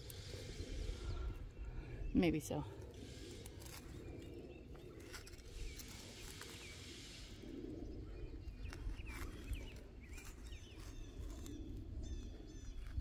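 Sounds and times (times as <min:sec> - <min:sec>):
small birds chirping: 0:00.0 - 0:13.0
trowel scraping into dry soil: 0:05.0 - 0:07.4.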